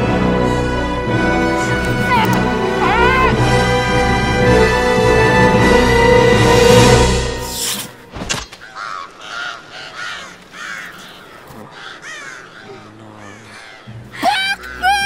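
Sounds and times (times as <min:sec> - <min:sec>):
film music: 0:00.0 - 0:08.2, 0:13.0 - 0:15.0
crows cawing: 0:01.4 - 0:03.4, 0:08.6 - 0:15.0.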